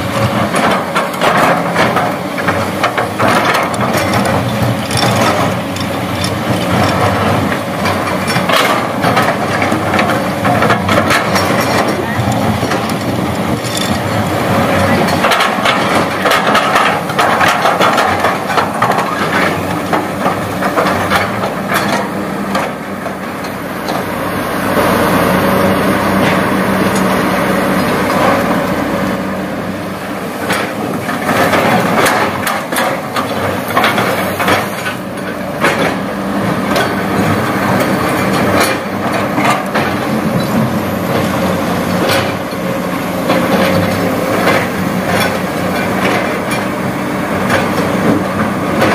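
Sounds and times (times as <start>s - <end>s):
diesel engine running: 0.0s - 48.9s
stones clanking and rattling: 3.7s - 7.0s, 10.8s - 14.2s.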